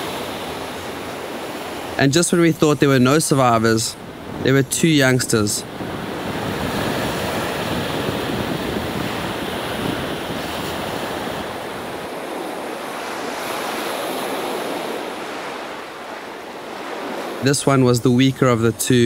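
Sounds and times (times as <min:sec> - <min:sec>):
ocean surf washing onto beach: 0:00.0 - 0:19.0
wind buffeting microphone: 0:03.5 - 0:17.4.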